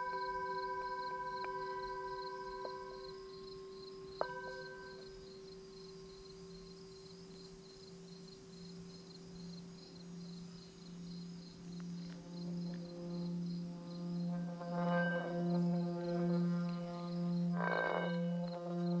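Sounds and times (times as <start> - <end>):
metal singing bowl ringing: 0.0 - 6.9, 14.4 - 19.0
crickets chirping: 0.0 - 19.0
low bowl tone pulsing: 0.0 - 19.0.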